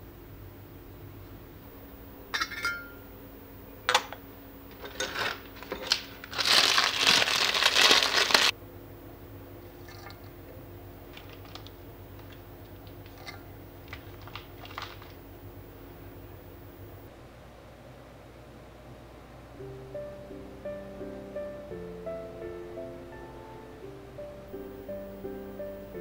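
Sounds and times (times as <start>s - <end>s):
metal lid clinking: 2.3s - 3.0s, 3.8s - 6.0s
dried tea crinkling: 4.7s - 8.5s, 9.8s - 15.3s.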